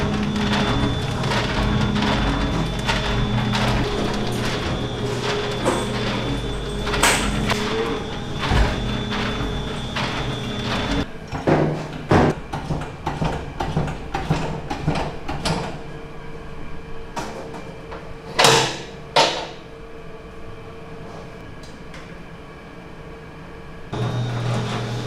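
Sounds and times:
mixer knocks and clatter: 0:00.0 - 0:15.8
mixing trough tilting noises: 0:00.0 - 0:15.8
steady machine hum: 0:00.0 - 0:25.0.

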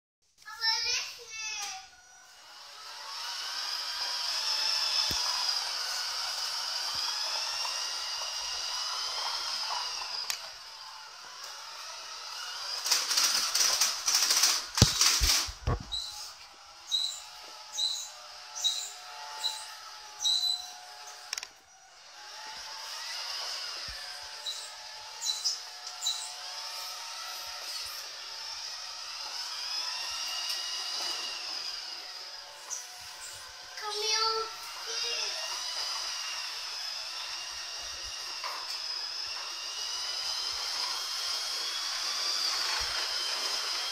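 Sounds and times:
toy truck motor whining: 0:00.4 - 0:43.9
loud stuttering rattle: 0:02.2 - 0:21.5.

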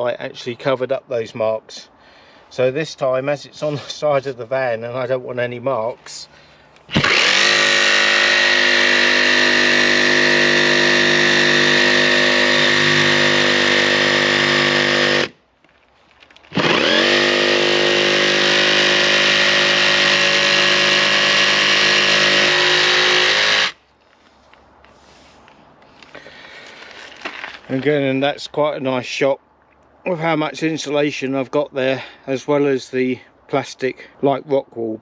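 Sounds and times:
jigsaw cutting sheet metal: 0:06.9 - 0:15.3, 0:16.5 - 0:23.8.

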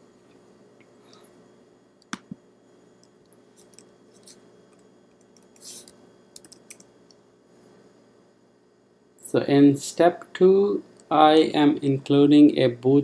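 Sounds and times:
keyboard keys clicking: 0:06.4 - 0:06.9.

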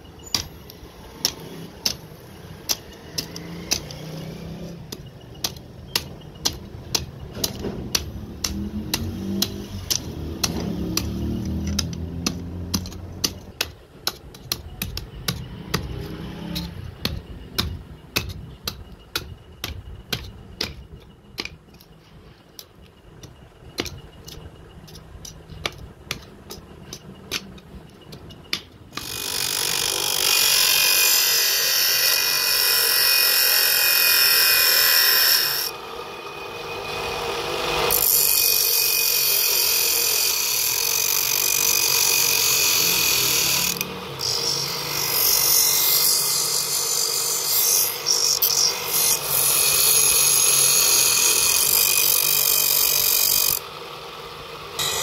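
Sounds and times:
hammer tapping metal: 0:00.2 - 0:29.2
bench grinder grinding steel: 0:28.9 - 0:55.0.

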